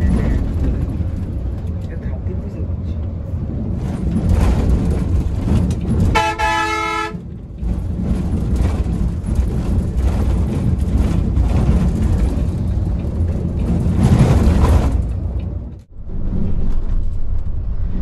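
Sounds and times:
vehicle rumble: 0.0 - 18.0
vehicle horn blast: 6.2 - 7.2.

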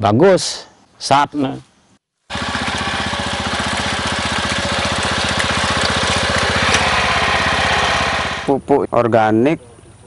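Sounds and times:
hand tractor engine chugging: 2.3 - 8.5.

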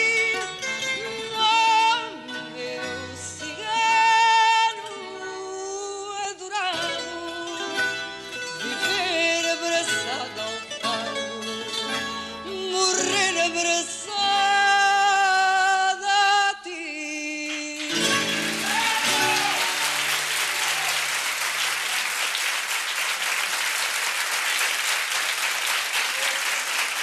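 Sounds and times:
woman singing with vibrato: 0.0 - 7.9, 8.6 - 19.8
plucked guitars: 0.0 - 15.7, 17.8 - 20.9
audience applause: 17.8 - 27.0.

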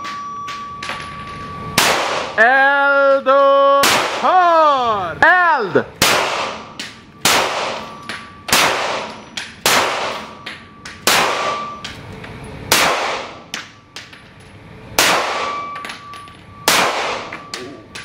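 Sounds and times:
faint metallic ring: 0.0 - 1.8, 9.1 - 9.6, 15.4 - 18.0
pistol shots reverberating indoors: 1.8 - 2.4, 6.0 - 10.4, 11.0 - 11.7, 12.7 - 13.4, 15.0 - 15.7, 16.7 - 17.5.

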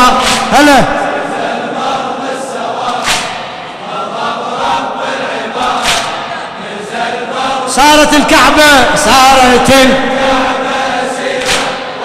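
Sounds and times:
sharp slaps: 0.0 - 0.9, 2.8 - 3.6, 5.7 - 6.4, 11.4 - 12.0
men chanting in unison: 0.0 - 12.0.

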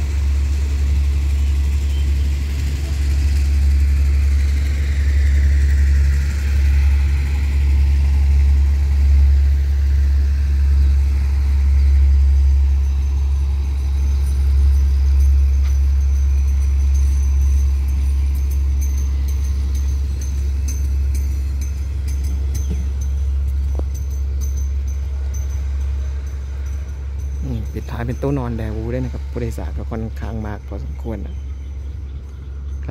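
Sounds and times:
faint high whine: 0.0 - 32.9
train coaches rumbling on rails: 0.0 - 32.9.

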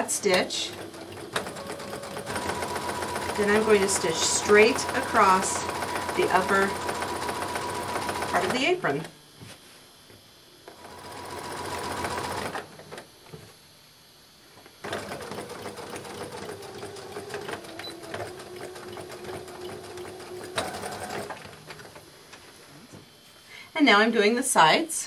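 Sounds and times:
sewing machine stitching: 0.0 - 8.7, 10.7 - 12.7, 14.8 - 22.0.

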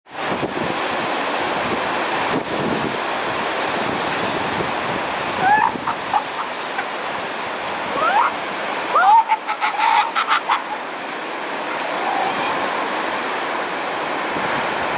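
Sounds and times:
surf washing over rocks: 0.1 - 14.9
wind buffeting microphone: 0.2 - 8.9.

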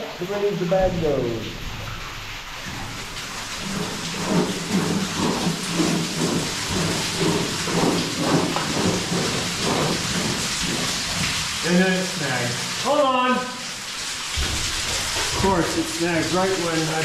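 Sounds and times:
sandbag scraping along wooden planks: 3.6 - 11.2.

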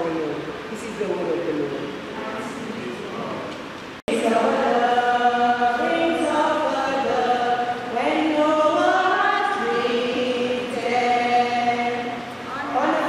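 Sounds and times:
group of voices singing: 4.1 - 13.0.

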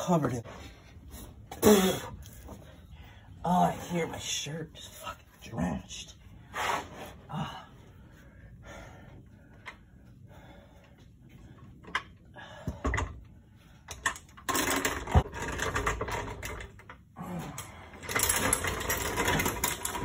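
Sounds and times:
metal clattering and knocking: 13.9 - 16.9, 18.0 - 20.0.

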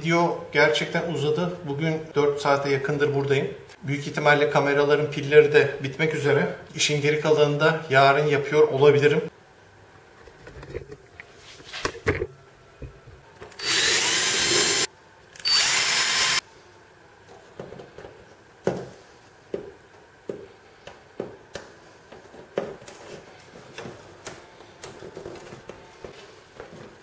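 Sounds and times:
cordless drill drilling plywood: 13.6 - 16.4.

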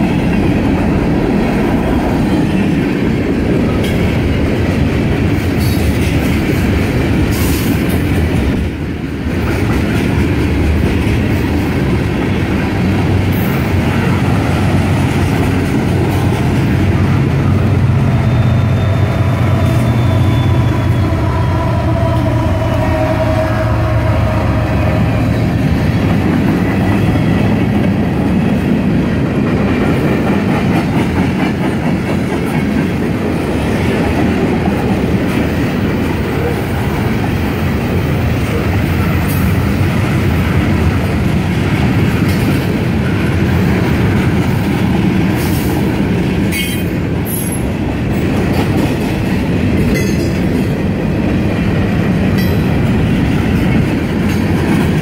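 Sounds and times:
train wheels rumbling on rails: 0.0 - 55.0
high wheel squeal: 18.2 - 25.4.

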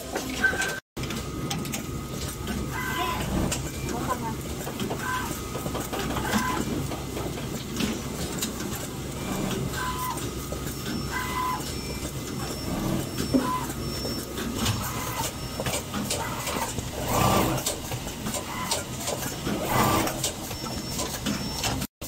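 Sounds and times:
machine humming: 0.0 - 21.9
pneumatic actuators clicking: 0.0 - 21.9.

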